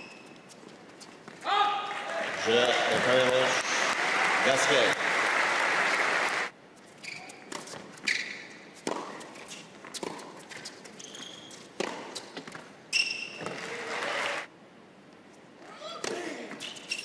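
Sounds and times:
shoe squeaks on court: 0:00.0 - 0:01.2, 0:06.9 - 0:13.7, 0:16.5 - 0:17.0
applause: 0:01.9 - 0:06.5, 0:13.6 - 0:14.5
tennis ball struck and bouncing: 0:08.8 - 0:09.3.

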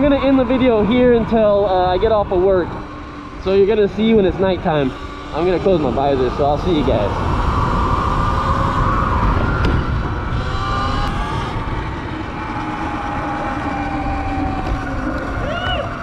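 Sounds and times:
electric motor whine: 0:00.0 - 0:16.0
road rumble: 0:00.0 - 0:16.0
wind: 0:00.0 - 0:16.0.

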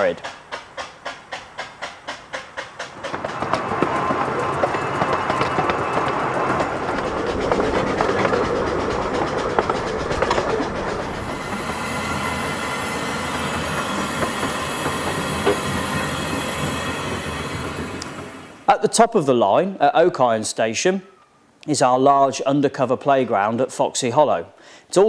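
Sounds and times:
train wheels clicking over track: 0:00.0 - 0:18.8.

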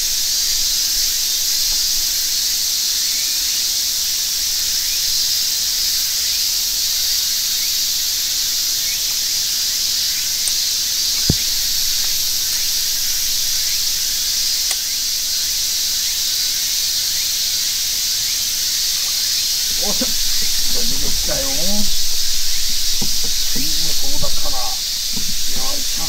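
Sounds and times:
high-pitched insect chorus: 0:00.0 - 0:26.0
sharp knock: 0:19.7 - 0:26.0.

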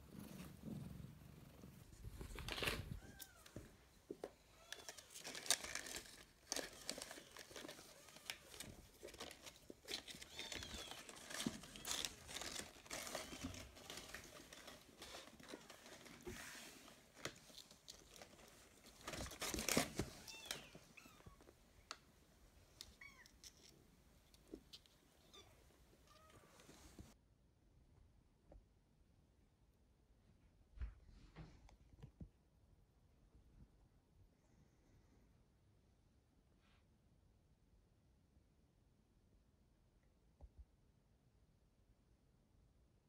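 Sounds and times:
paper crinkling and rustling: 0:01.9 - 0:22.0.

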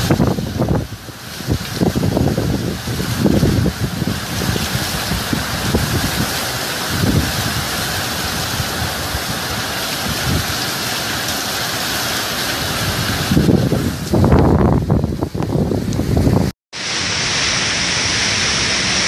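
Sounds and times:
wind gusts buffeting microphone: 0:00.0 - 0:10.6, 0:12.6 - 0:16.5
driving rain: 0:00.0 - 0:19.0
hurricane wind: 0:00.0 - 0:19.0.

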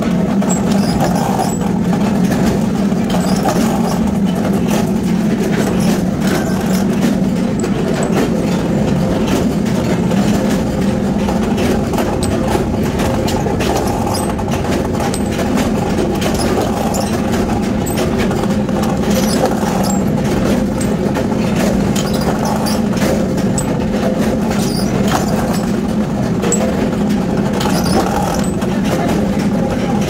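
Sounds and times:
power press humming: 0:11.0 - 0:25.8.

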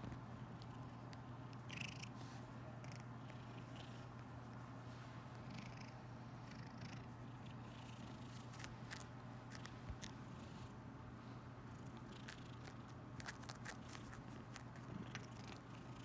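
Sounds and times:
cat purring: 0:00.5 - 0:04.6, 0:05.3 - 0:10.8, 0:11.7 - 0:16.0.

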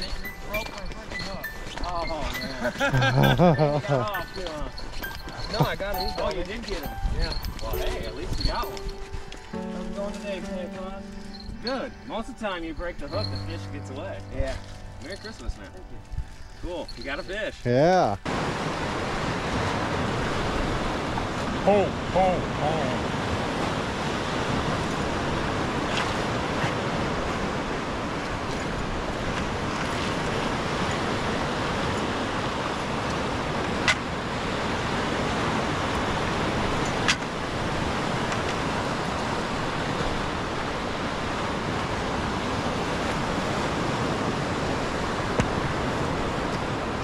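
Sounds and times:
lake waves washing: 0:18.2 - 0:47.0.

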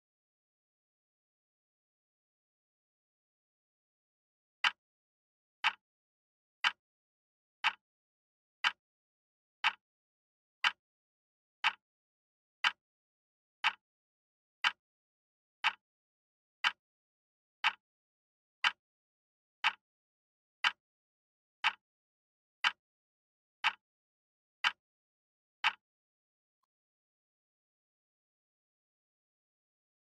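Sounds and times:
clock ticks: 0:04.6 - 0:04.8, 0:05.6 - 0:05.8, 0:06.6 - 0:06.8, 0:07.6 - 0:07.8, 0:08.6 - 0:08.8, 0:09.6 - 0:09.8, 0:11.6 - 0:11.8, 0:12.6 - 0:12.8, 0:13.6 - 0:13.8, 0:14.6 - 0:14.8, 0:15.6 - 0:15.8, 0:16.6 - 0:16.8, 0:17.6 - 0:17.8, 0:19.6 - 0:19.8, 0:20.6 - 0:20.8, 0:21.6 - 0:21.8, 0:22.6 - 0:22.8, 0:23.6 - 0:23.8, 0:24.6 - 0:24.8, 0:25.6 - 0:25.8.

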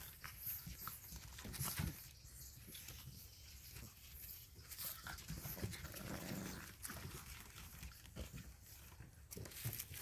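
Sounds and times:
scuffling clicks of paws: 0:00.0 - 0:10.0
puppy growl: 0:05.0 - 0:08.5.

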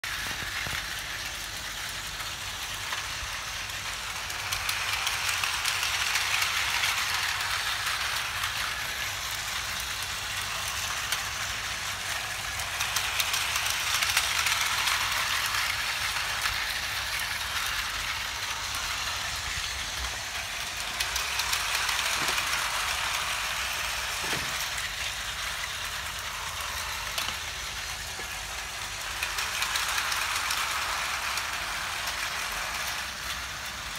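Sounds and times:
fine clicking of toy track: 0:00.0 - 0:33.9
toy train motor whir: 0:00.0 - 0:33.9.

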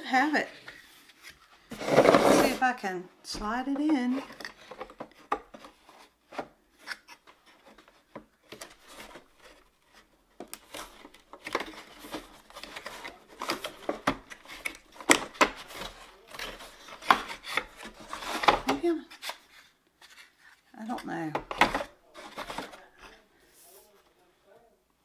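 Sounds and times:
wooden pieces scraping and clicking: 0:06.3 - 0:22.8.

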